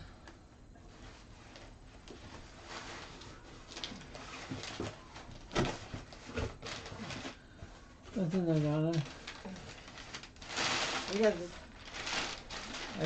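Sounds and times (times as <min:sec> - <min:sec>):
packing paper rustling: 0:01.4 - 0:13.0.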